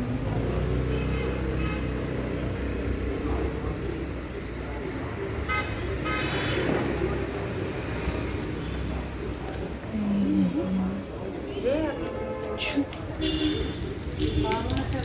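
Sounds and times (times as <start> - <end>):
road traffic rumble: 0.0 - 15.0
vehicle horn tooting: 11.9 - 14.6.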